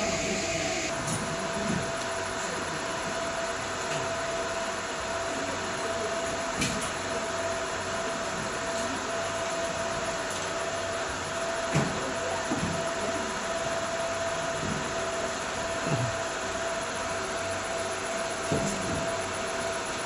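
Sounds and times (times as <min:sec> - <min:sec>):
steady high tone: 0:00.0 - 0:01.2
laser marking machine whirring hum: 0:00.0 - 0:20.0.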